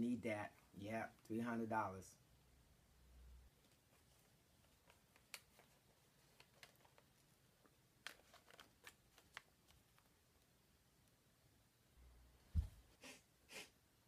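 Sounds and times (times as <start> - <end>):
paper banknotes rustling: 8.0 - 10.1.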